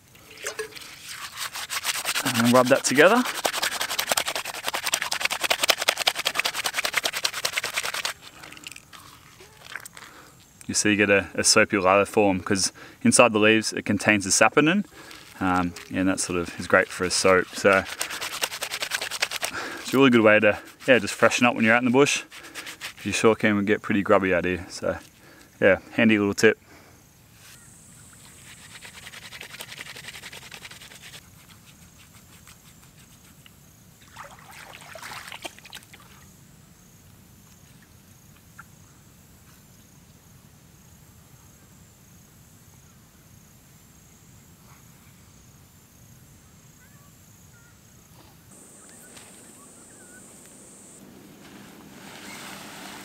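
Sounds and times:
water splashing: 0.2s - 9.9s, 14.9s - 21.4s, 34.0s - 36.2s
wet hands rubbing leaves: 0.2s - 10.8s, 13.9s - 24.2s, 27.4s - 33.5s, 48.5s - 53.0s
insect trill: 0.3s - 53.0s.

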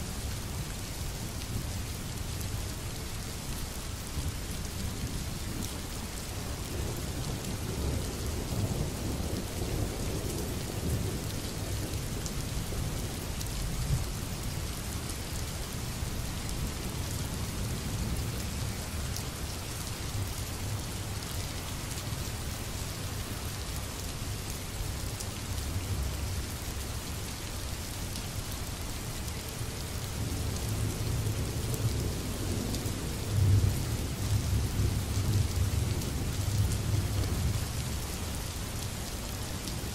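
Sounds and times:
steady rain: 0.0s - 39.9s.

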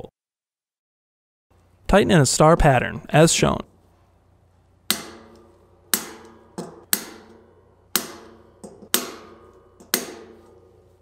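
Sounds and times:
torque driver clicking: 4.9s - 10.7s.

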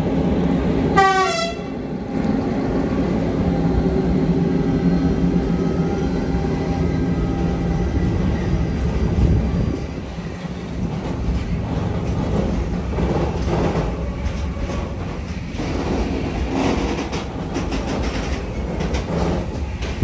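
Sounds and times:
train wheels rumbling on rail: 0.0s - 20.0s
wheels clacking over rail joints: 10.0s - 20.0s.

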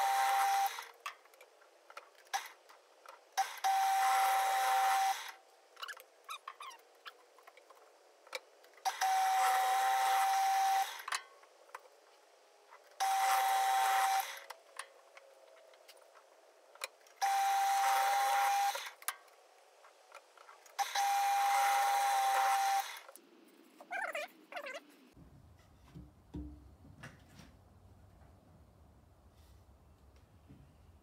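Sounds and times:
drill bit cutting wood: 0.0s - 0.8s, 3.4s - 5.4s, 8.9s - 11.1s, 13.0s - 14.4s, 17.2s - 19.0s, 20.8s - 23.1s
pillar drill motor whine: 0.0s - 0.9s, 3.6s - 5.4s, 8.9s - 11.1s, 13.0s - 14.6s, 17.2s - 19.0s, 20.8s - 23.2s.

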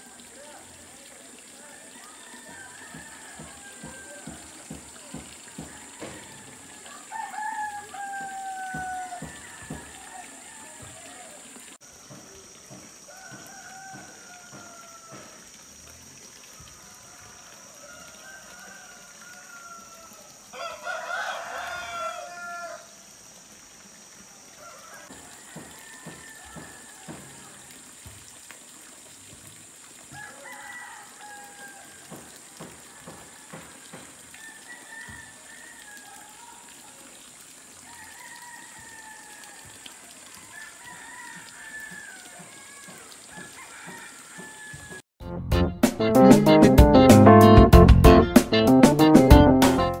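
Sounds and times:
distant roosters crowing: 1.5s - 11.6s, 12.7s - 15.6s, 16.5s - 23.0s, 24.6s - 27.8s, 30.1s - 36.8s, 37.8s - 45.0s
rooster crowing loudly: 1.7s - 4.5s, 5.6s - 11.3s, 13.1s - 15.4s, 16.7s - 22.9s, 24.6s - 27.6s, 30.1s - 36.7s, 37.8s - 45.0s.

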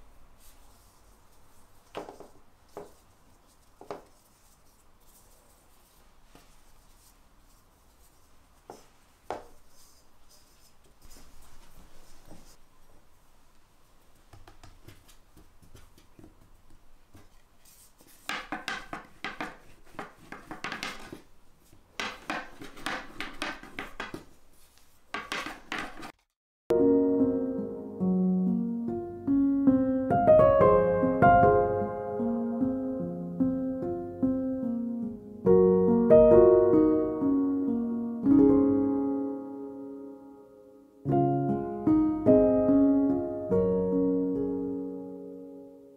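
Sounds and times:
hands slapping dough: 14.3s - 17.4s, 18.1s - 24.4s, 25.1s - 26.3s.

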